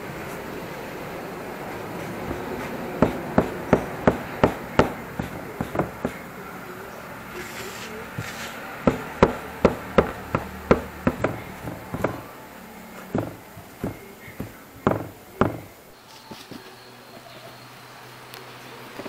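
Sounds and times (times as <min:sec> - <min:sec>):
metal knife knocking on tile floor: 0:08.9 - 0:12.2, 0:13.1 - 0:15.7.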